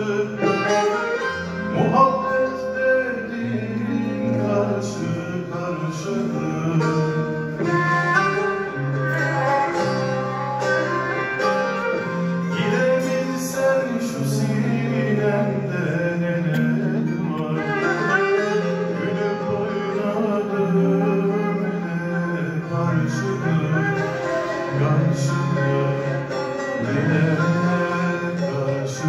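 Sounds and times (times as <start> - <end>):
plucked strings and guitar: 0.0 - 29.0
choir singing folk song: 12.2 - 29.0.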